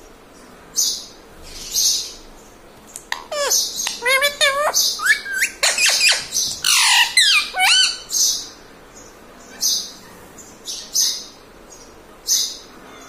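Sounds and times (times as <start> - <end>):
parakeet chirps and squawks: 3.0 - 8.5.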